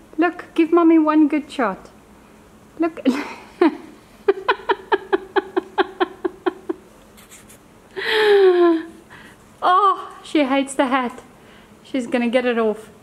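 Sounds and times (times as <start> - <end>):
woman laughing: 3.0 - 6.9, 8.0 - 9.0.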